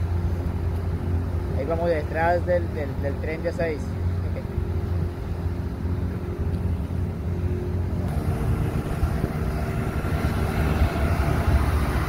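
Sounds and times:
outboard motor droning: 0:00.0 - 0:12.0
water rushing hiss: 0:08.0 - 0:12.0.

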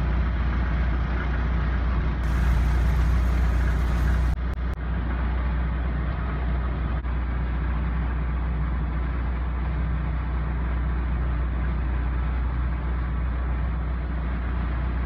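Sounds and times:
vehicle engine running: 0:02.0 - 0:05.0.

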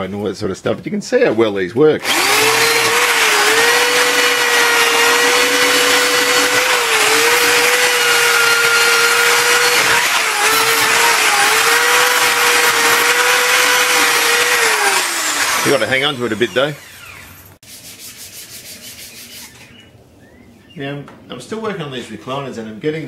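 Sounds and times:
electric drill motor whine: 0:02.0 - 0:17.5.

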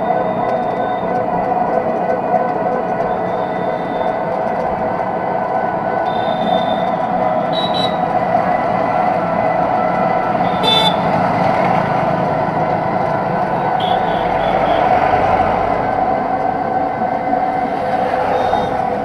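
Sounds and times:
road noise: 0:00.0 - 0:19.0.

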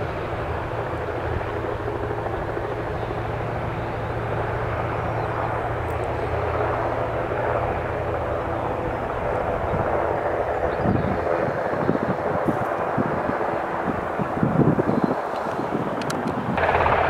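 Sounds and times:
helicopter flying overhead: 0:00.0 - 0:17.0.

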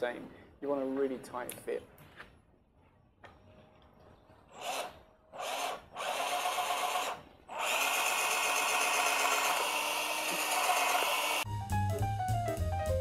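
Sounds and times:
cordless drill boring wood: 0:04.5 - 0:11.4.

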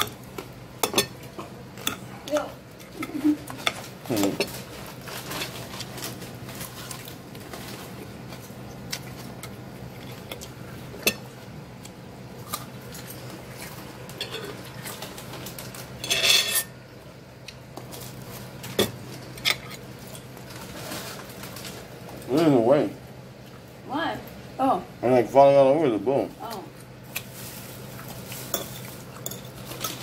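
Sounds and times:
fork clinking and scraping plate: 0:16.0 - 0:16.7, 0:28.5 - 0:30.0.

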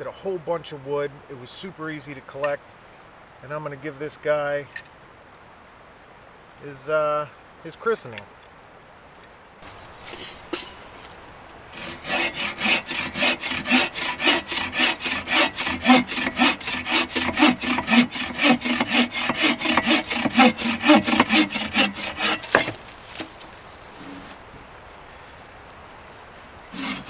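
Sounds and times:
saw cutting through wood: 0:11.7 - 0:23.3, 0:26.7 - 0:27.0.

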